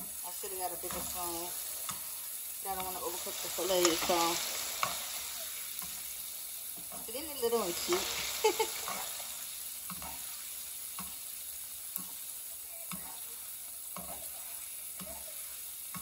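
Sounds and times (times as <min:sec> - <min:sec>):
meat sizzling in a frying pan: 0:00.0 - 0:16.0
spoon scraping pan: 0:00.6 - 0:10.4.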